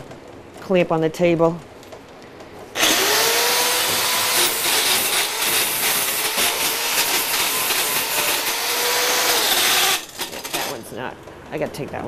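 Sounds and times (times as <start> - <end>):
angle grinder grinding metal: 2.8 - 10.8.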